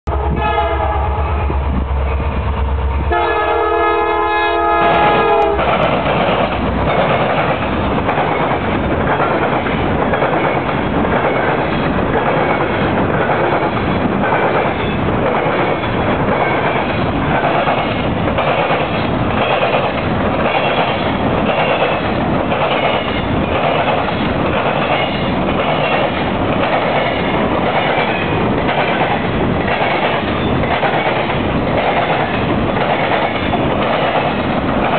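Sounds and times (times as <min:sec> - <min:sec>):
train horn: 0:00.1 - 0:01.5, 0:03.0 - 0:05.7
train wheels clattering: 0:04.6 - 0:34.9.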